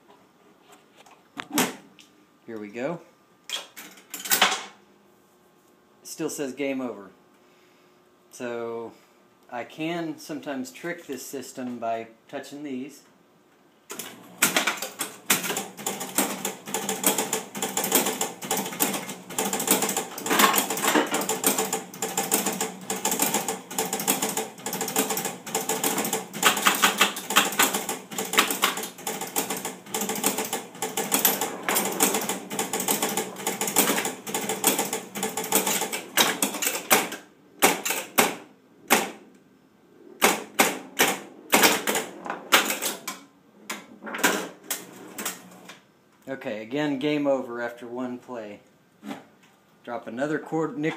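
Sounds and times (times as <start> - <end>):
pinball machine relays clicking: 13.9 - 38.3, 40.2 - 43.2.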